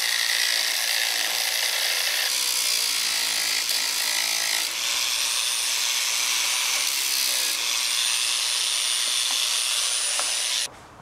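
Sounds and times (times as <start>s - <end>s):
angle grinder cutting steel rod: 0.0s - 10.7s.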